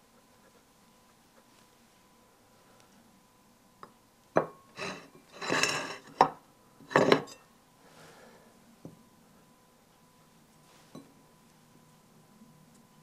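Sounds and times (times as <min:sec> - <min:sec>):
china clinking on wooden table: 0:04.4 - 0:07.4.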